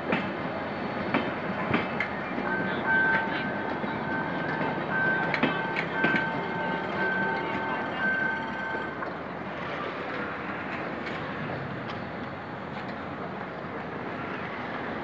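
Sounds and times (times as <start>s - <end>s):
train rumbling: 0.0s - 15.0s
train wheel clicks on rail joints: 1.1s - 9.2s.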